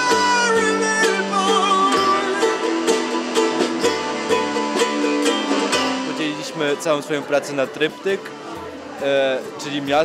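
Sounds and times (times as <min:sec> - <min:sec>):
hand drums: 0:00.0 - 0:07.0
sliding melody line: 0:00.0 - 0:08.0
electric guitars: 0:00.0 - 0:09.0
strummed ukulele: 0:00.0 - 0:10.0.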